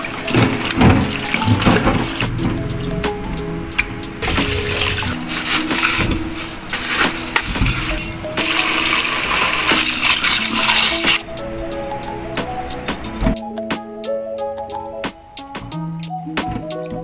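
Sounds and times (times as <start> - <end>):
water splashing: 0.0 - 13.4
background music: 0.0 - 17.0
tap water running into metal bowl: 6.9 - 11.2.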